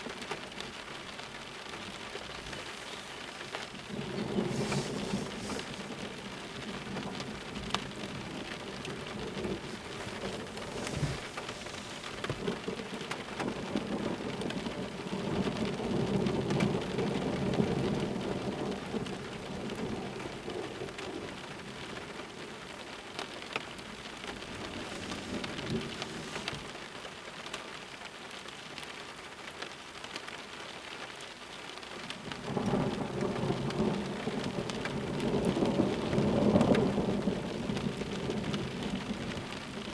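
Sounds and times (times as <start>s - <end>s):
close raindrops ticking: 0.0s - 39.9s
steady rain: 0.0s - 39.9s
low thunder rumble: 1.8s - 22.5s, 23.8s - 26.8s, 32.3s - 39.9s.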